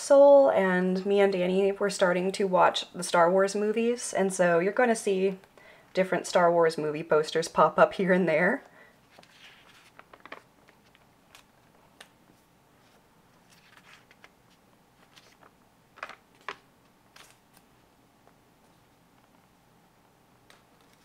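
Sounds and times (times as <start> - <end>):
paper pages rustling: 9.0 - 17.7, 20.5 - 21.0
page snaps: 15.0 - 17.7.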